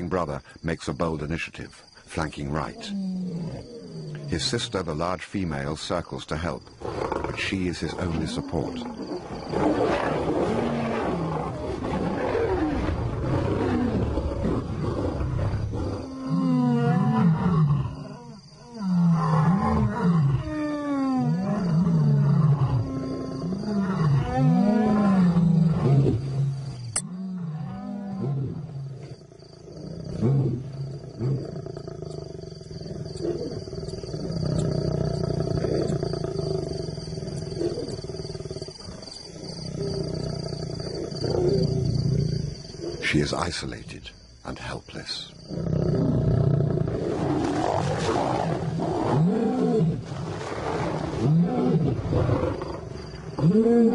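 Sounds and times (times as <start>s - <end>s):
lions roaring: 6.8s - 38.9s, 45.5s - 53.9s
lions growling: 6.8s - 43.3s, 45.5s - 53.9s.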